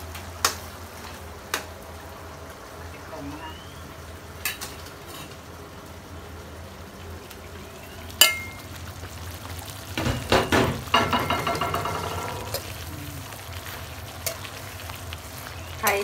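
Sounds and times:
meat frying in a pan: 0:00.0 - 0:16.0
utensil clinking on pan: 0:08.2 - 0:08.6, 0:10.2 - 0:12.6.

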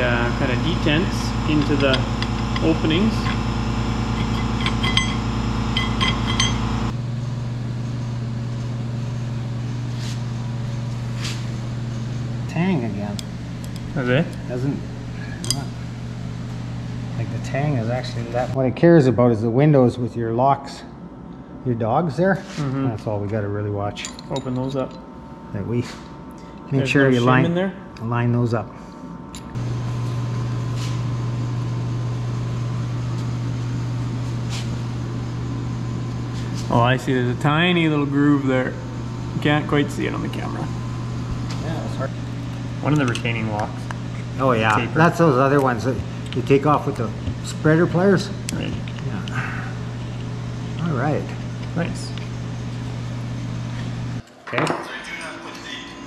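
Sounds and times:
steady low hum: 0:00.0 - 0:56.0
metal gear parts clinking: 0:05.8 - 0:06.6.

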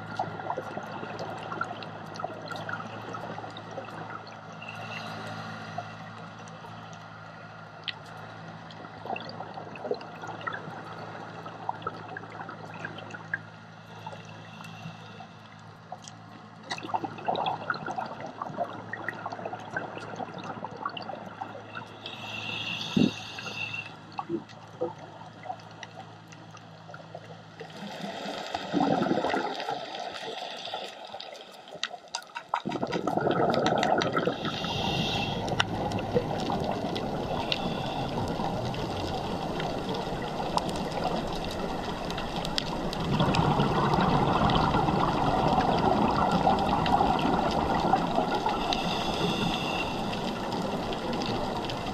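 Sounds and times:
underwater water wash: 0:00.0 - 0:51.9
bubbling: 0:16.7 - 0:25.7, 0:27.7 - 0:30.7, 0:31.8 - 0:51.9.

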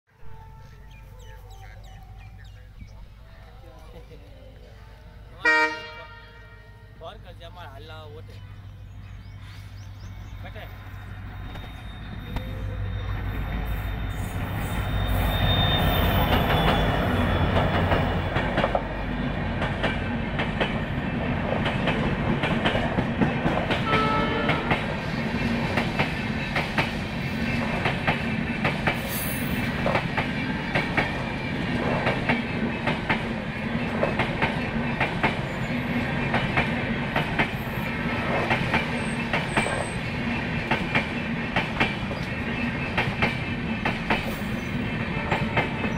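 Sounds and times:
diesel locomotive passing: 0:00.1 - 0:45.9
train wheels clickety-clack: 0:11.4 - 0:45.9.

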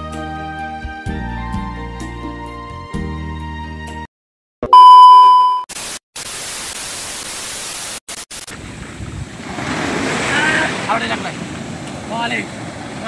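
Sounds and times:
background music: 0:00.0 - 0:04.1
loud steady beep: 0:04.7 - 0:05.7
static hiss: 0:05.7 - 0:08.6
surf: 0:08.4 - 0:13.0.

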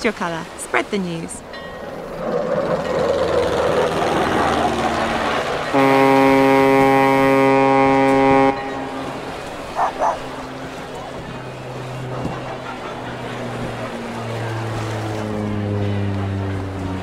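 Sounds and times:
ship's horn long blast: 0:05.7 - 0:12.6, 0:13.4 - 0:17.0.

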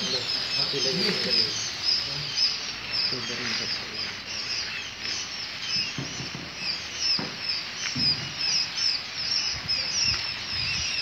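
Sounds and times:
chicks peeping: 0:00.0 - 0:11.0
low knocks: 0:05.8 - 0:08.6.

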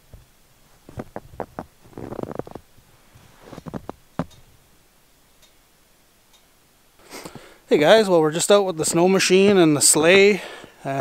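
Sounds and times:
footsteps crunching in snow: 0:00.7 - 0:04.0.

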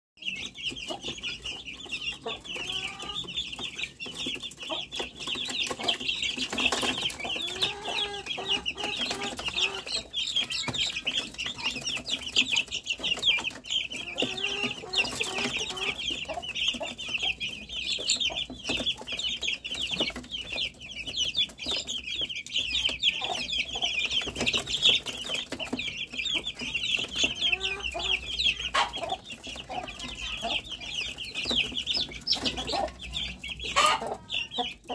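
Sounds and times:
chicks peeping: 0:00.2 - 0:34.9.

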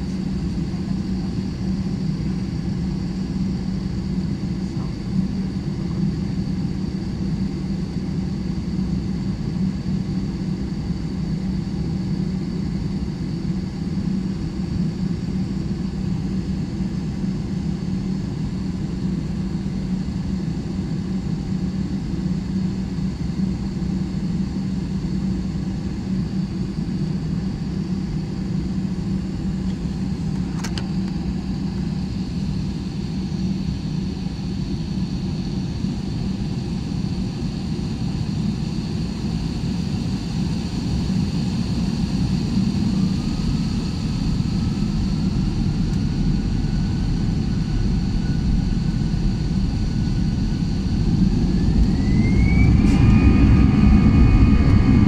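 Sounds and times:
jet engines humming and rumbling: 0:00.0 - 0:55.0
rising engine whine: 0:40.7 - 0:55.0.

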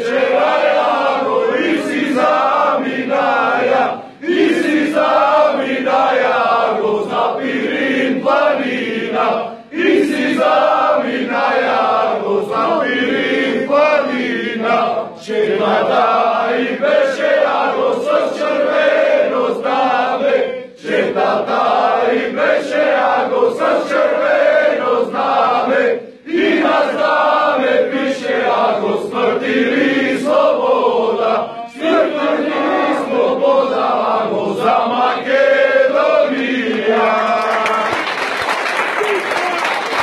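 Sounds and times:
crowd of men singing: 0:00.0 - 0:37.9.

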